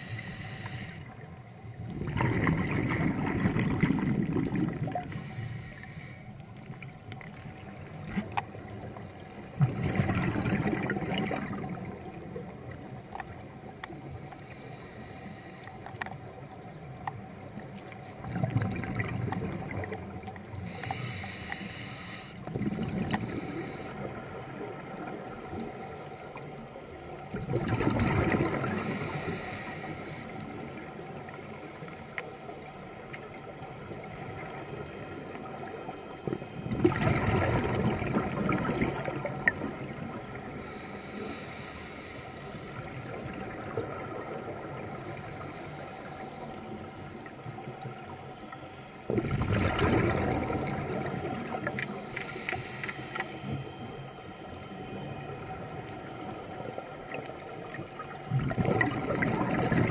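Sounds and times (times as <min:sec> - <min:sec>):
scuba regulator breathing: 0:00.0 - 0:02.1, 0:05.0 - 0:06.5, 0:14.3 - 0:16.0, 0:20.5 - 0:22.5, 0:23.1 - 0:24.4, 0:28.4 - 0:30.8, 0:40.4 - 0:43.2, 0:44.7 - 0:47.2, 0:51.7 - 0:55.1
steady underwater hiss: 0:00.0 - 0:59.9
exhaled bubbles rushing: 0:01.9 - 0:05.1, 0:09.6 - 0:12.0, 0:18.2 - 0:20.1, 0:22.5 - 0:23.5, 0:27.3 - 0:28.9, 0:36.7 - 0:40.1, 0:49.1 - 0:51.8, 0:57.9 - 0:59.9.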